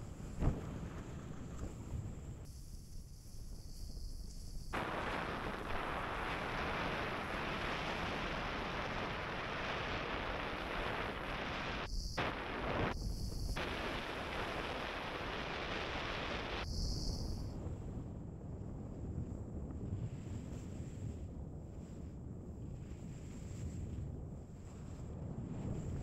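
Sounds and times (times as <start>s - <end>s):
wind rushing on microphone: 0.0s - 26.0s
skis sliding over snow: 20.1s - 26.0s.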